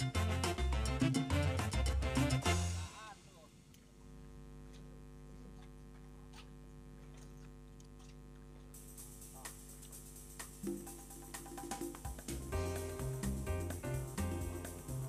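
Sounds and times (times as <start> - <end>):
steady low hum: 2.6 - 10.9.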